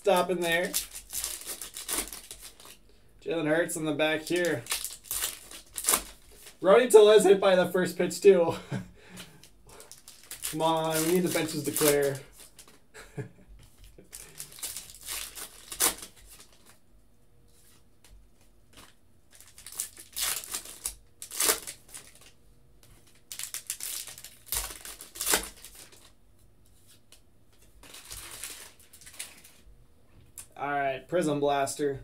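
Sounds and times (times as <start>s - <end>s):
foil packs tearing: 0.0s - 2.8s, 4.1s - 6.6s, 9.7s - 12.7s, 14.1s - 16.7s, 18.8s - 22.4s, 23.0s - 26.1s, 27.8s - 29.6s
wrappers crinkling: 0.0s - 2.8s, 4.0s - 6.7s, 9.2s - 12.8s, 13.7s - 16.8s, 18.7s - 26.2s, 27.6s - 29.7s.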